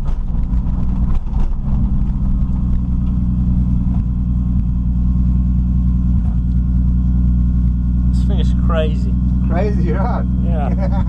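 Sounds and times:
car engine low rumble: 0.0 - 11.0.

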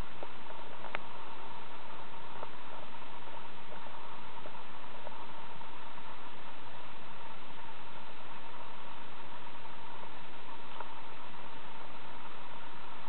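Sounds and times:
faint high whine: 0.0 - 13.0
steady hiss: 0.0 - 13.0
soft ticks: 0.1 - 1.1.

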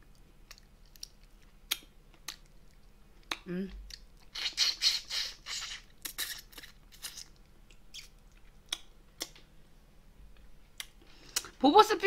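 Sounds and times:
wet chewing: 0.0 - 9.4.

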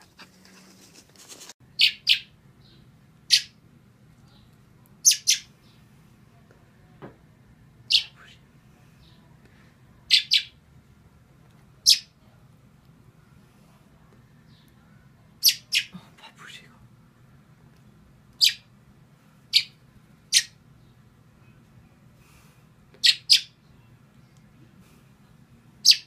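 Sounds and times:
fledgling bird cheeping: 1.8 - 3.6, 5.0 - 5.5, 10.1 - 10.6, 11.8 - 12.1, 15.4 - 15.9, 18.4 - 18.7, 19.5 - 20.6, 23.0 - 23.9.

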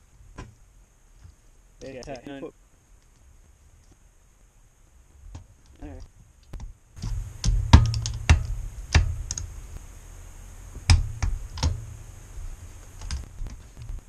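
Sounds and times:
low rumble of tool handling: 5.0 - 9.9.

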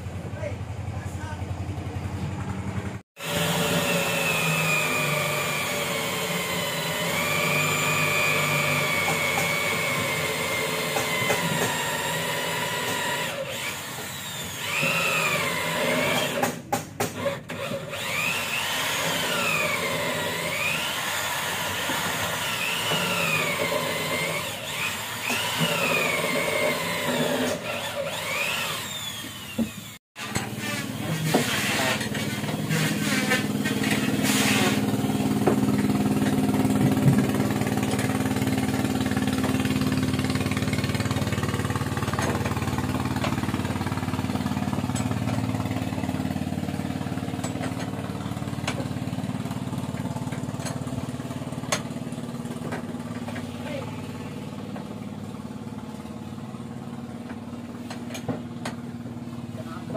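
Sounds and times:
electric drill motor whine: 3.2 - 16.4, 17.5 - 45.4.

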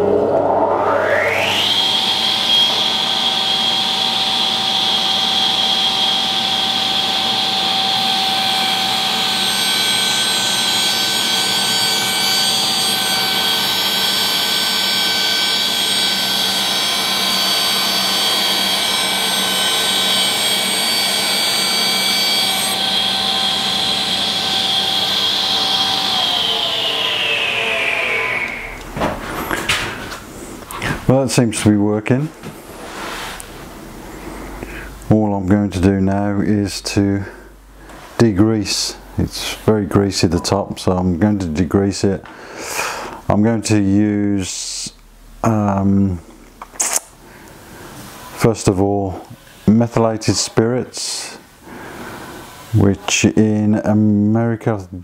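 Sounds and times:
table saw whining: 0.0 - 30.9, 51.1 - 52.8.

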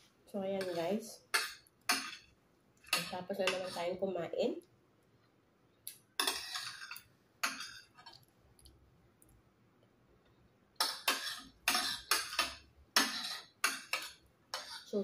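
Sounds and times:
metal spoon scraping ceramic plate: 0.6 - 2.3, 2.9 - 4.0, 6.2 - 8.0, 10.8 - 15.0.

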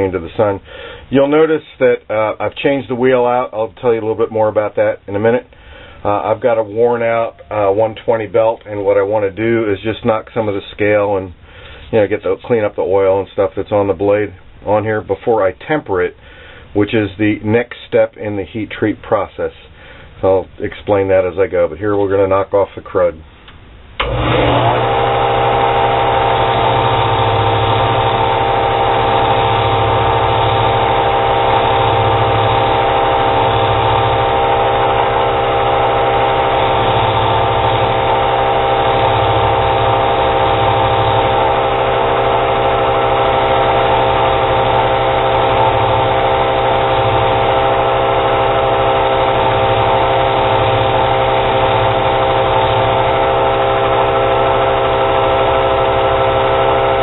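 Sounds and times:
belt grinder humming: 24.0 - 57.0.

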